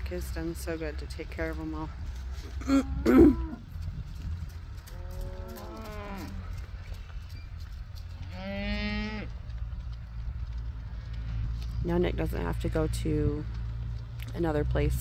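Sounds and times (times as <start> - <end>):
steady low rumble: 0.0 - 8.4, 9.0 - 15.0
cows mooing: 2.6 - 3.6, 4.9 - 6.6, 8.2 - 9.3.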